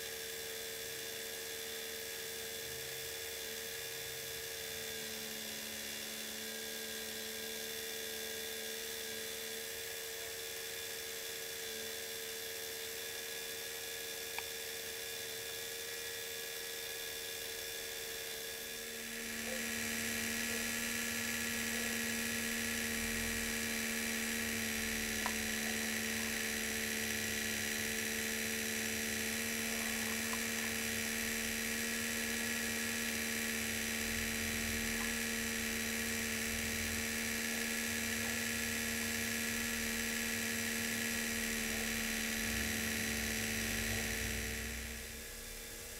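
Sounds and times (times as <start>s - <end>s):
small electric motors whining: 0.0s - 45.9s
chairlift drive humming: 28.8s - 45.9s.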